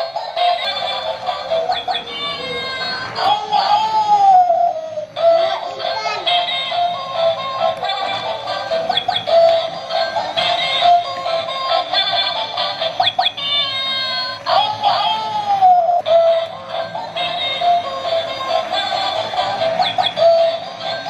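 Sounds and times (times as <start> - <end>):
tinny electronic toy tune: 4.7 - 21.0.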